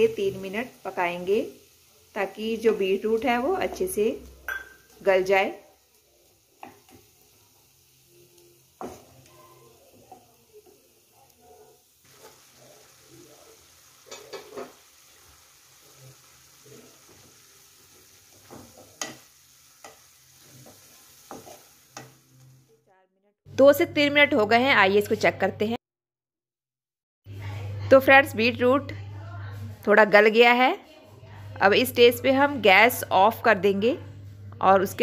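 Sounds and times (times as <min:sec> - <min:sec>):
beetroot sizzling in a pan: 0:00.0 - 0:22.8.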